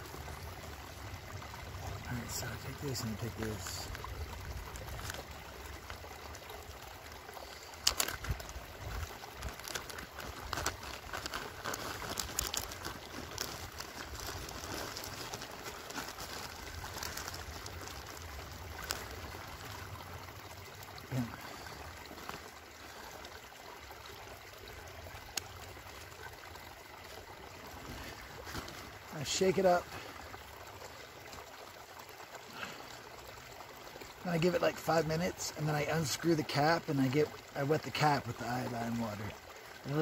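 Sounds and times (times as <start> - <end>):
stream running: 0.0 - 40.0
plastic bag crinkling: 7.8 - 8.5, 9.2 - 19.4.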